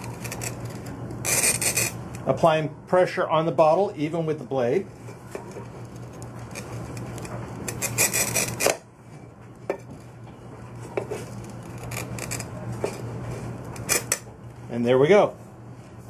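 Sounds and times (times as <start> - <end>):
glass cutter scoring glass bottle: 0.0 - 2.2, 6.5 - 8.8, 13.8 - 14.3.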